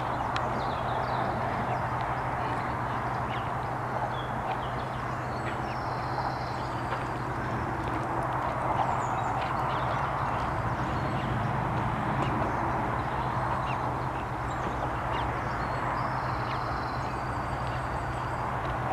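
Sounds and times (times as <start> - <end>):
outdoor hum and hiss: 0.0 - 18.9
high-pitched bird calls: 12.2 - 18.9.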